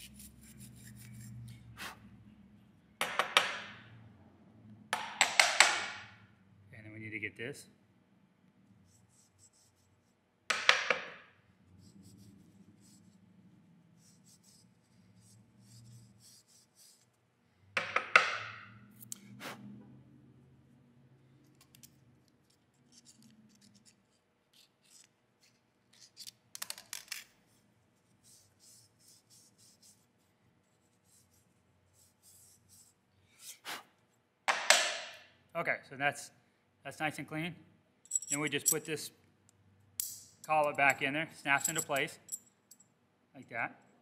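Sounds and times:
knife blade scratching metal threads: 0:00.0 - 0:01.9, 0:22.8 - 0:26.4.

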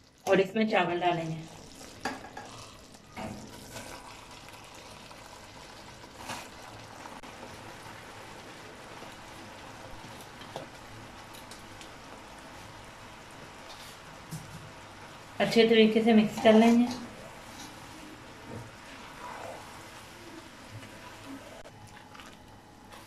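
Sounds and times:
sugar syrup bubbling in a pan: 0:00.0 - 0:15.5.

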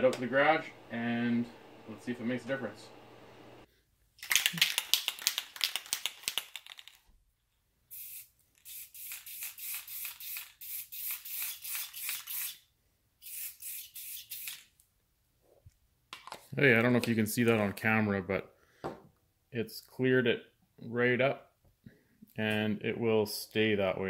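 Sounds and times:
aerosol can rattling: 0:04.2 - 0:07.0, 0:07.9 - 0:12.5
aerosol spray hissing: 0:07.9 - 0:12.5.

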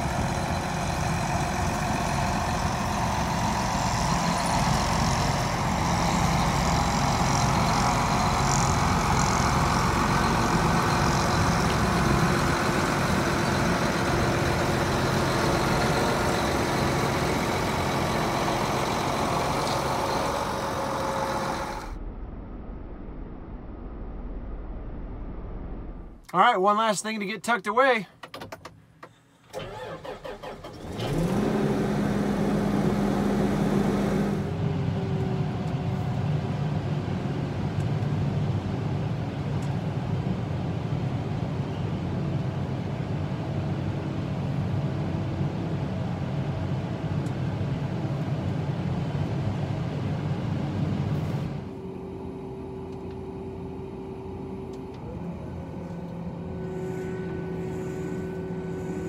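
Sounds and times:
tractor diesel engine: 0:00.0 - 0:22.0, 0:29.0 - 0:59.0.

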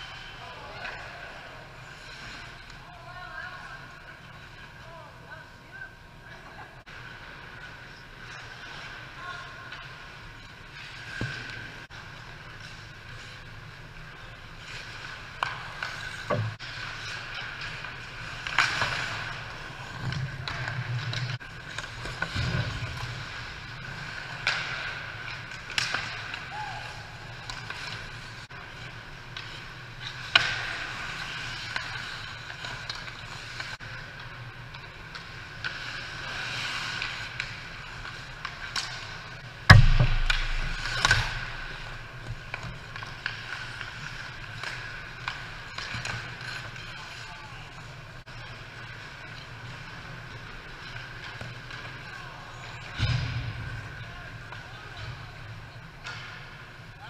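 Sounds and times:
skate blades scraping ice: 0:06.9 - 0:57.0
hockey sticks and puck clacking: 0:07.4 - 0:57.0
loud thump: 0:39.7 - 0:40.8.

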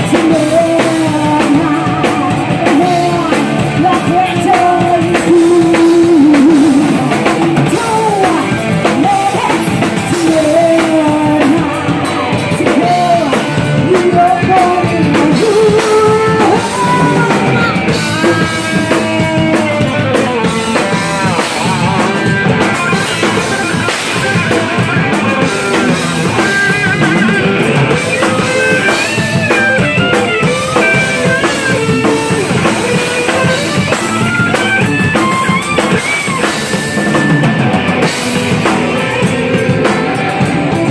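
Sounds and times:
bass guitar: 0:00.0 - 0:40.9
distorted electric guitars: 0:00.0 - 0:40.9
drum kit: 0:00.0 - 0:40.9
high melodic guitar lead lines: 0:00.0 - 0:40.9
woman singing lead: 0:00.0 - 0:40.9.

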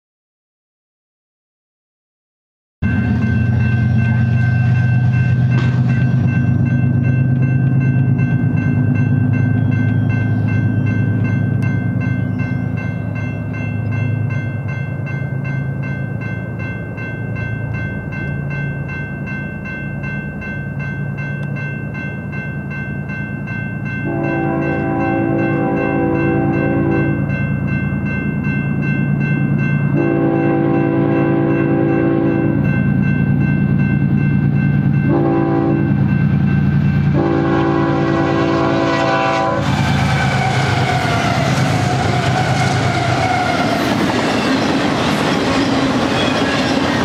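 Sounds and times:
crossing warning bell ringing: 0:02.8 - 0:47.0
locomotive air horn: 0:24.0 - 0:27.1, 0:30.0 - 0:32.5, 0:35.1 - 0:35.9, 0:37.1 - 0:43.8.

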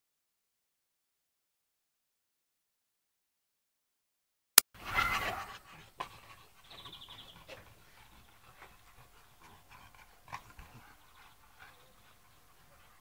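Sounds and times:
dogs play-fighting: 0:04.8 - 0:13.0.

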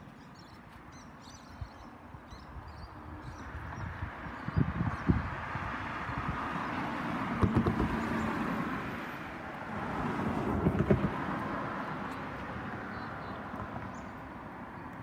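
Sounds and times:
road traffic passing: 0:00.0 - 0:15.0
close knocks: 0:07.4 - 0:08.1.

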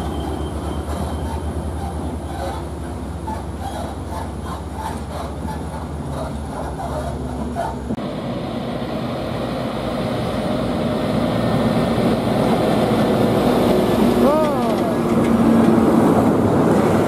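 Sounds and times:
diesel truck engine drone: 0:00.0 - 0:17.0
truck engine and tyre noise: 0:00.0 - 0:17.0.

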